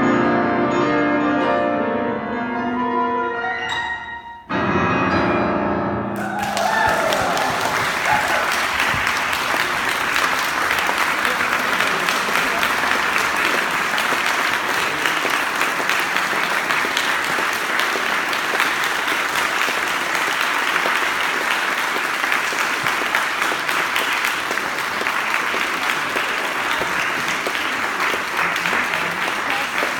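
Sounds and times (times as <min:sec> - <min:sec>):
large audience applauding: 0:06.2 - 0:29.9.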